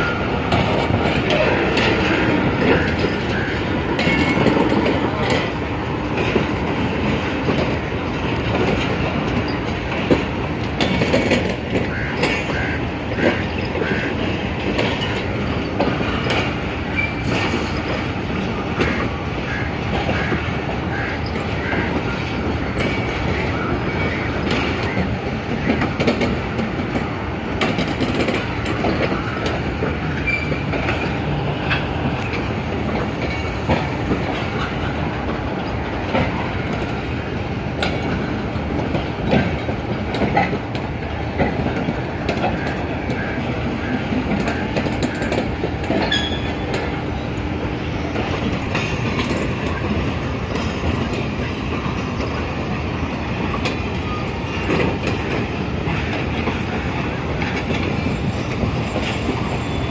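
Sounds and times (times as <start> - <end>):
wheels clicking over rail joints: 0.0 - 47.0, 47.8 - 59.9
train rumbling past: 0.0 - 59.9
faint wheel squeals: 30.1 - 31.1.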